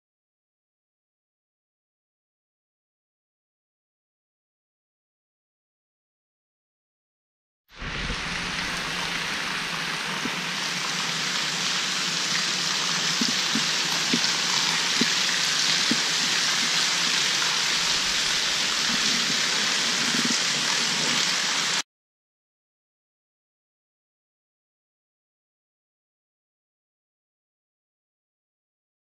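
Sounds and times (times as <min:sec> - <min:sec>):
splashing water hiss: 0:07.8 - 0:21.8.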